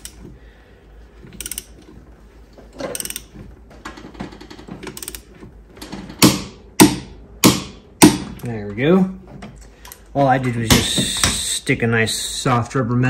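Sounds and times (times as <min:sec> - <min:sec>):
torque wrench ratchet clicking: 0:01.3 - 0:01.8, 0:02.9 - 0:03.3, 0:04.9 - 0:05.2.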